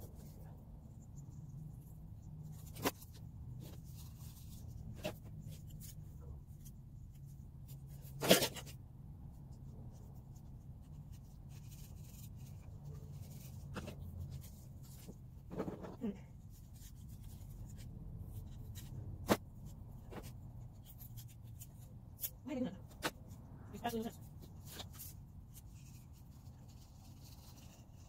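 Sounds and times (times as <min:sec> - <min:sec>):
plastic pots rustling and clattering: 0:12.3 - 0:16.4.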